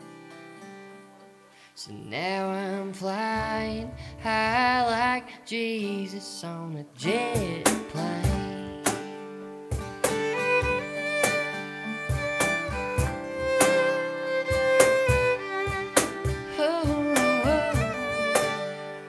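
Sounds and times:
percussive thumps: 9.7s - 18.7s
fiddle melody: 9.7s - 19.0s.

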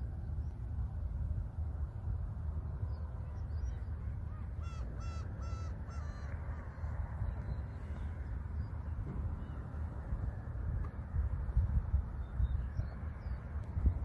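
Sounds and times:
low outdoor rumble: 0.0s - 14.0s
bird harsh calls: 4.3s - 7.0s.

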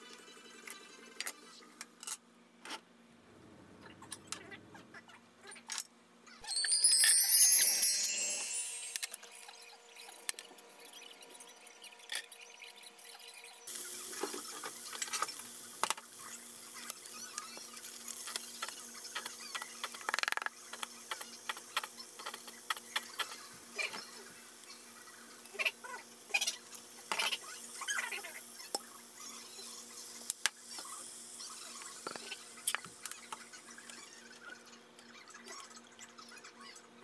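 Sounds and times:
oil sizzling in a frying pan: 13.6s - 33.6s.

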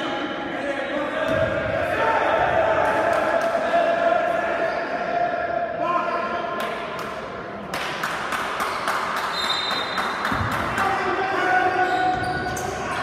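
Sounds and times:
voices in a hall: 0.0s - 13.0s
shoe squeak: 8.7s - 10.0s, 11.8s - 13.0s.

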